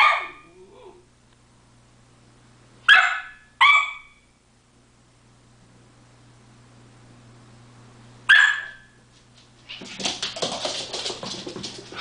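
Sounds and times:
puppy barking: 0.0 - 0.5, 2.8 - 4.2, 8.3 - 9.0
paws scrambling on wooden floor: 9.1 - 12.0.

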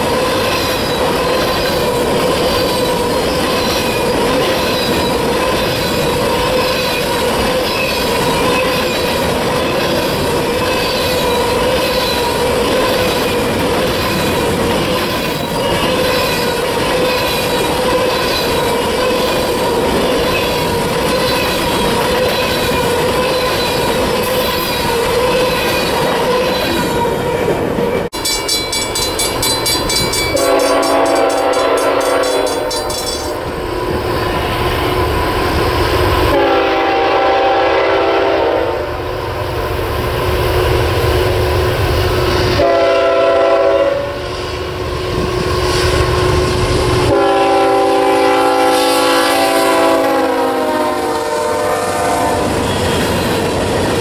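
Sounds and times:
train wheels squealing: 0.0 - 27.1, 28.2 - 36.1, 52.4 - 54.0
locomotive air horn blasts: 30.3 - 32.7, 36.3 - 39.0, 42.6 - 44.3, 47.1 - 52.7.

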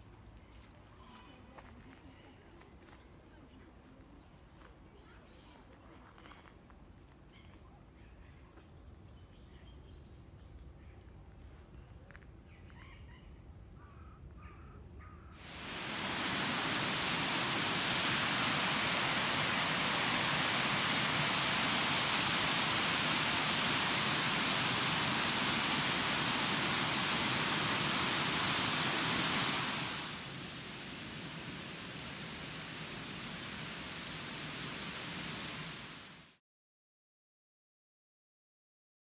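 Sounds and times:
water rushing over weir: 15.4 - 36.3.

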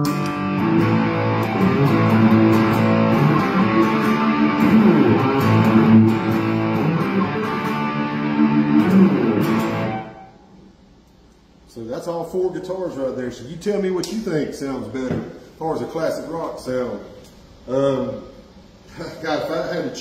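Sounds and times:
overdriven electric guitar riff: 0.0 - 10.3.

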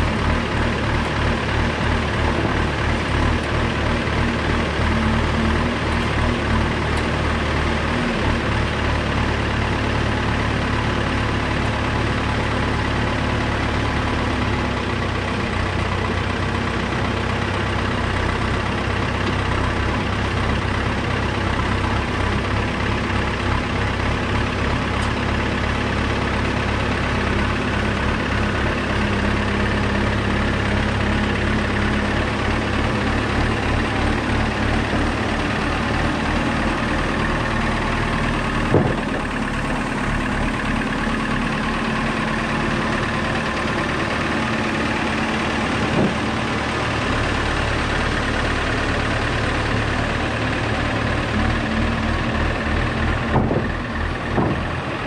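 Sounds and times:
diesel engine running: 0.0 - 55.0
short sharp knocks: 54.3 - 54.7.

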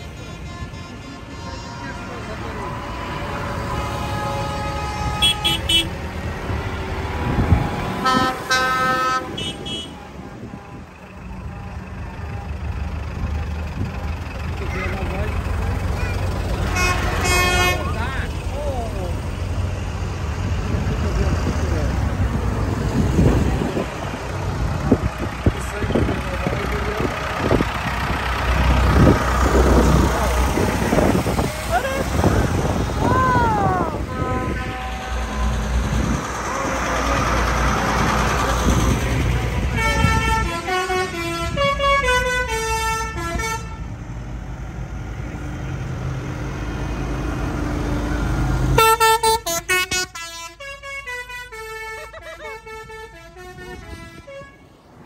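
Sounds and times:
musical vehicle horn: 0.0 - 6.0, 8.0 - 11.0, 16.0 - 18.0, 34.0 - 36.0, 39.6 - 44.0, 48.8 - 54.8
tractor engines running: 0.0 - 55.0.

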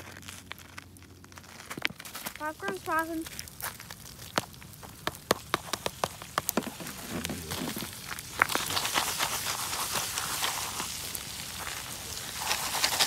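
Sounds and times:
popcorn popping: 0.0 - 13.0
sizzle: 2.1 - 13.0.

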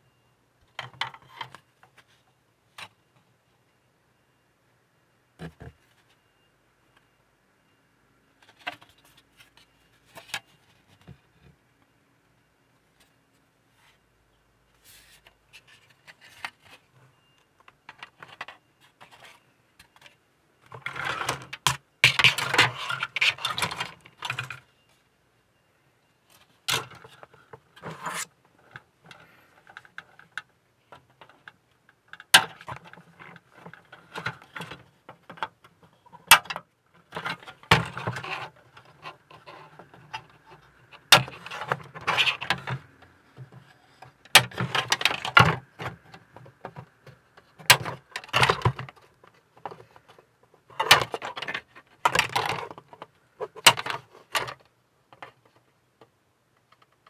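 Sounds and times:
plastic parts rattling and scraping: 0.7 - 3.0, 14.8 - 25.0, 26.3 - 57.0.

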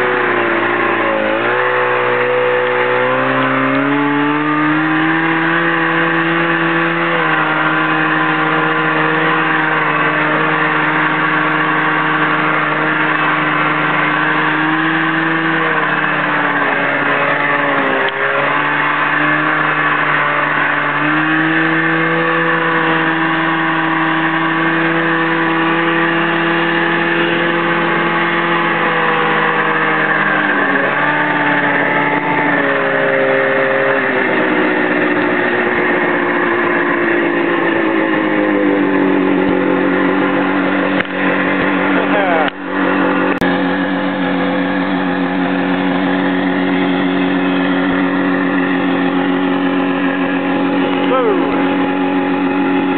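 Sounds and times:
snowmobile engine running: 0.0 - 52.9.

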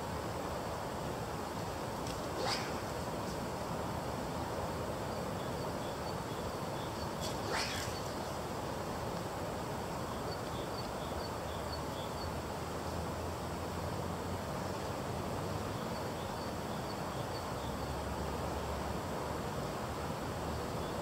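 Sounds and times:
river rushing: 1.6 - 5.0, 7.2 - 9.8
faint high bird chirps: 5.3 - 8.4.

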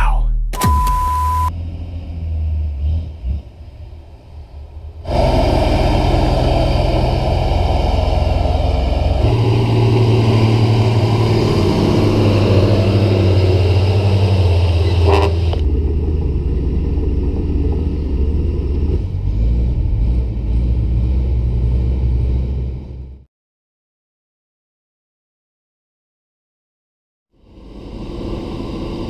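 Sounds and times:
dump truck diesel engines under load: 0.6 - 23.3
bulldozer engine running: 3.7 - 23.2.

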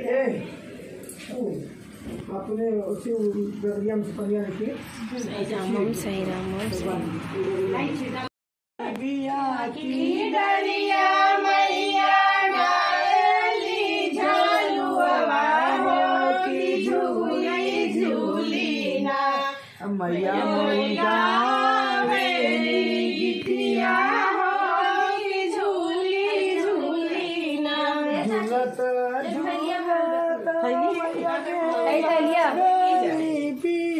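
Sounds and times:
women singing together: 8.8 - 33.9.

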